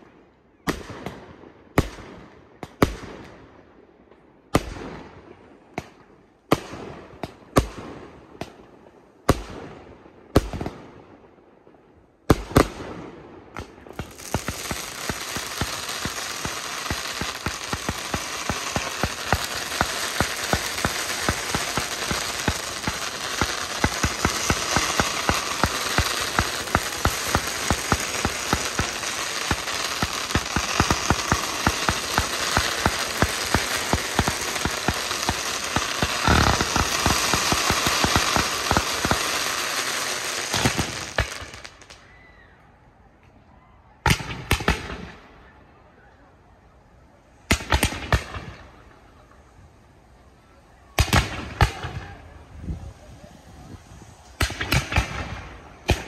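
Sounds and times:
fireworks pops and crackling: 12.3s - 42.0s, 47.5s - 48.6s, 50.9s - 56.0s.

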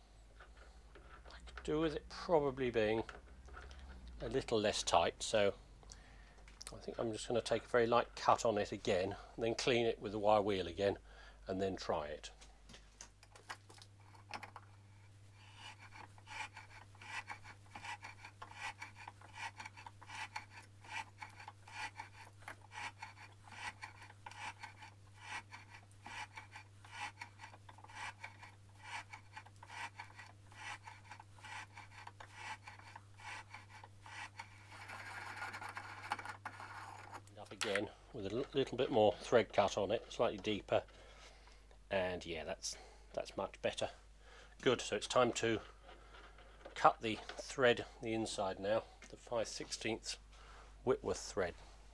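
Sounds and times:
thread die rasping scrape: 14.0s - 37.8s.

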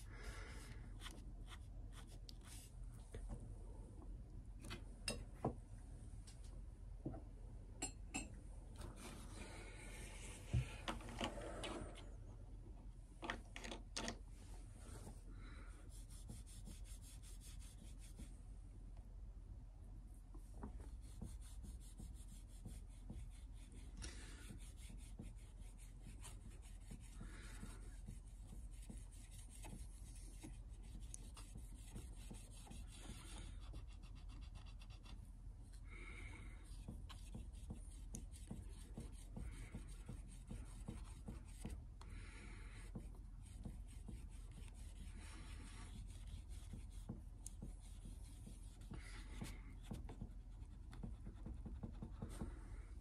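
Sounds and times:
low steady hum: 0.0s - 53.0s
cotton swab scrubbing wood: 15.8s - 18.3s, 20.5s - 52.6s.

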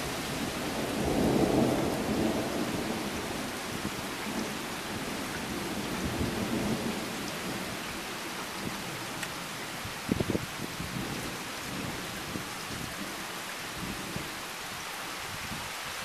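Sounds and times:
low roll of thunder: 0.0s - 7.8s
steady rain hissing: 0.0s - 16.0s.

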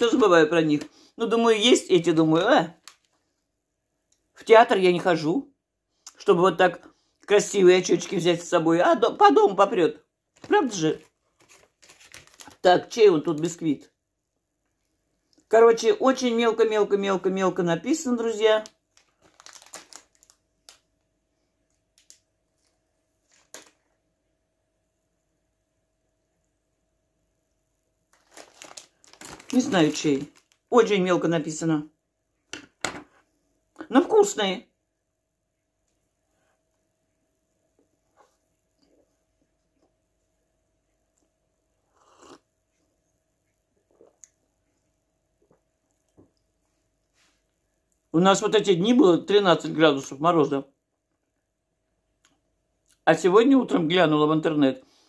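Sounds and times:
plastic wrapper crinkling: 2.4s - 3.2s, 10.4s - 13.5s, 18.5s - 21.0s, 21.7s - 23.9s, 28.1s - 30.8s
soft chewing and mouth noises: 14.5s - 15.5s, 35.6s - 48.1s
sip from a mug: 41.7s - 42.8s.

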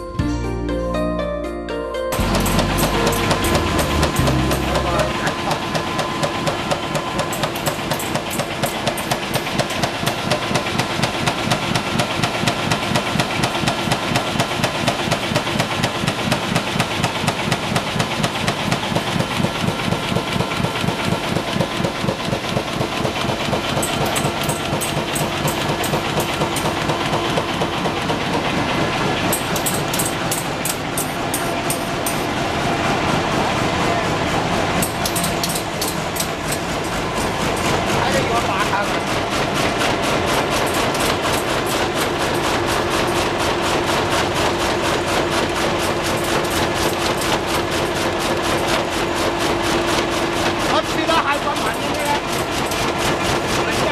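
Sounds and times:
printing machine rhythmic clatter: 2.2s - 53.9s.

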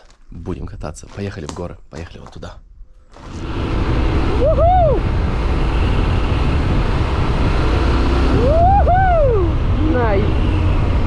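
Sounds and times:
wind rush on microphone: 3.2s - 11.0s.

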